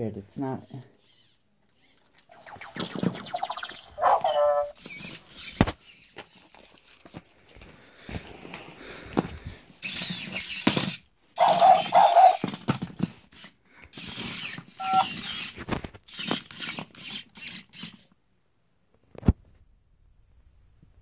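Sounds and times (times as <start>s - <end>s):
toy gear motors whirring: 0.4s - 7.3s, 9.8s - 18.2s
quick electronic beeps: 2.3s - 4.7s, 14.8s - 15.1s.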